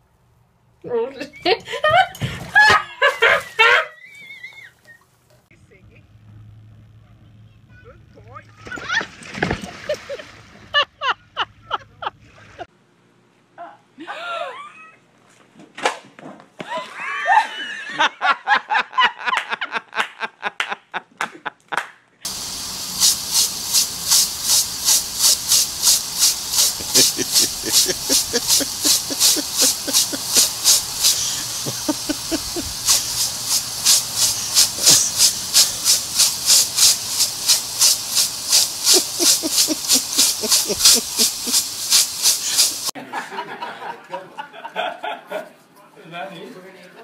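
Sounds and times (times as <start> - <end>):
sprinkler spraying water: 22.2 - 43.0
sprinkler ticking: 22.3 - 42.9.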